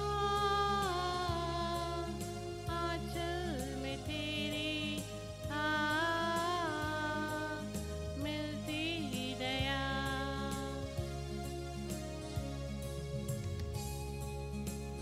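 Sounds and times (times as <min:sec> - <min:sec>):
woman singing a hymn: 0:00.0 - 0:11.0
instrumental accompaniment: 0:00.0 - 0:15.0.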